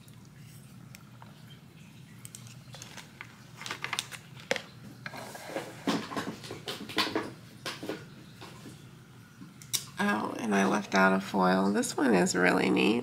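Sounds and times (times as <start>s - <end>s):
packaging rustling and crinkling: 2.3s - 4.7s.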